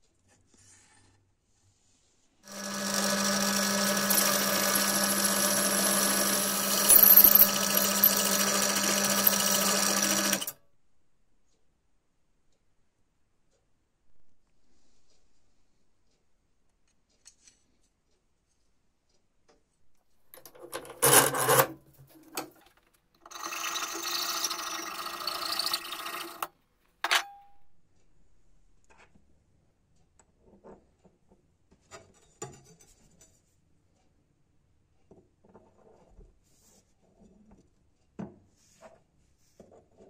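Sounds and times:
metallic ring: 6.7s - 8.1s
hacksaw rasping through metal: 20.4s - 22.6s.

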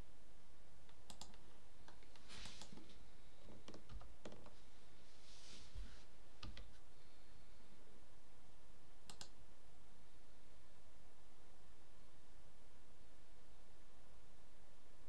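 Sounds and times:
mouse and keyboard clicking: 0.9s - 2.8s, 9.1s - 9.4s.

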